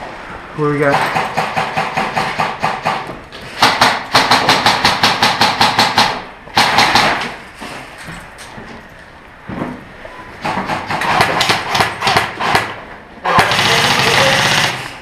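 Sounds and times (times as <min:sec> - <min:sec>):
airsoft rifle full-auto bursts: 0:13.3 - 0:15.0.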